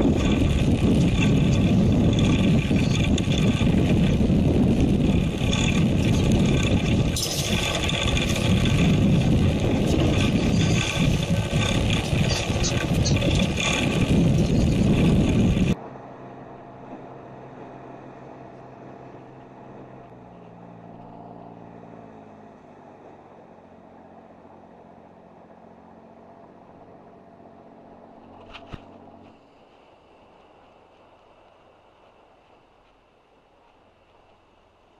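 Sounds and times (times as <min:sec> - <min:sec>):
loud rushing noise: 0:00.0 - 0:15.8
boat engine hum: 0:00.0 - 0:34.9.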